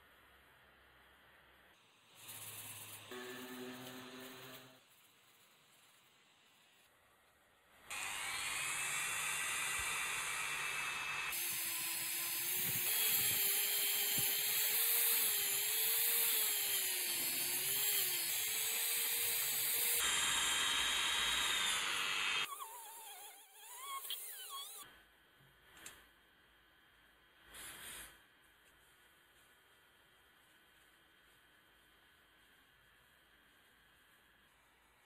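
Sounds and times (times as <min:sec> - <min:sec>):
rotary tool buffing metal: 0:02.1 - 0:05.8, 0:07.9 - 0:20.1, 0:21.0 - 0:24.8.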